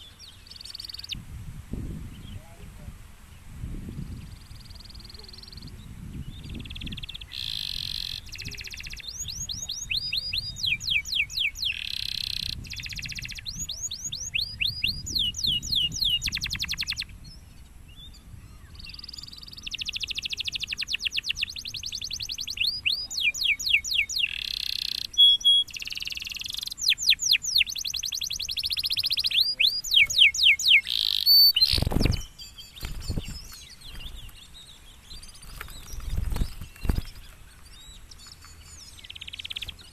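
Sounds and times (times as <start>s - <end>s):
canary singing: 0.0s - 1.2s, 4.3s - 17.1s, 18.6s - 39.9s.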